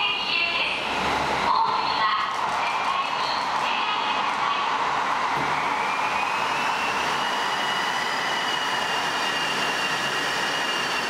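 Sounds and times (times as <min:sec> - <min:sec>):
train roaring through tunnel: 0:00.0 - 0:11.0
thin whistling tone: 0:05.6 - 0:11.0.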